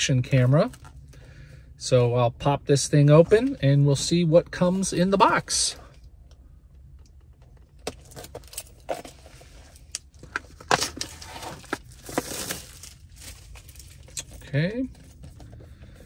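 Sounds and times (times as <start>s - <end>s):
cardboard packaging rustling: 8.0s - 15.5s.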